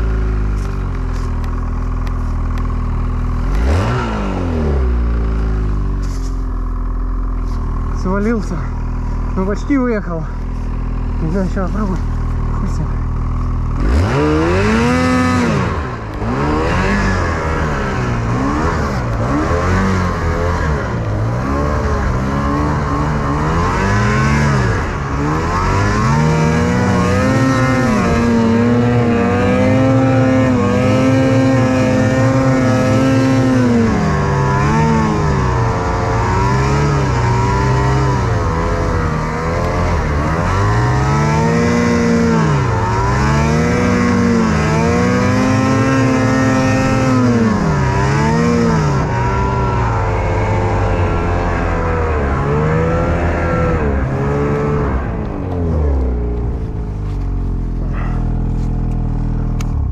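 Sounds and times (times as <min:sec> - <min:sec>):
snowmobile engine revving: 0:00.0 - 0:59.9.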